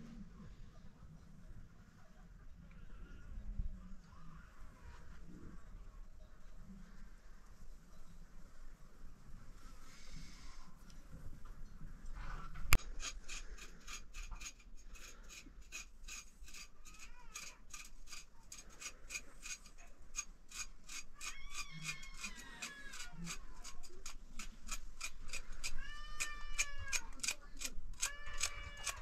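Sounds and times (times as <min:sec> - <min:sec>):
knife scraping fish scales: 0:12.8 - 0:29.0
cat meowing: 0:21.2 - 0:23.3, 0:25.7 - 0:27.1, 0:28.0 - 0:29.0.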